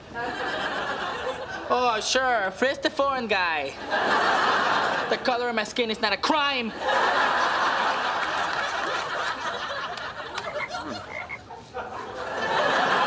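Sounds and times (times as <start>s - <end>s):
frog croaking: 10.4s - 11.5s.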